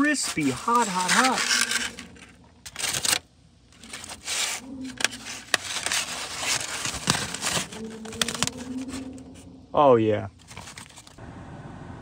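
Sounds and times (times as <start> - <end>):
aluminium foil crinkling: 0.0 - 9.4, 10.3 - 11.2.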